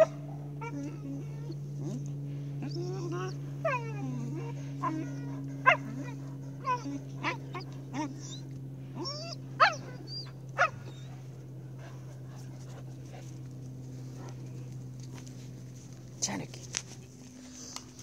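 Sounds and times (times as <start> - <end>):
steady low hum: 0.0 - 18.0
puppy yipping and barking: 4.8 - 8.4, 9.0 - 11.2.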